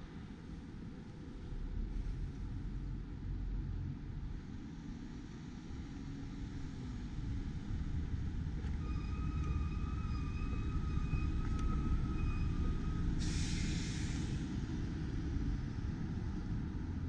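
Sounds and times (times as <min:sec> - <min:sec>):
vehicle engine rumble: 0:00.0 - 0:17.0
loud hiss: 0:13.2 - 0:14.4.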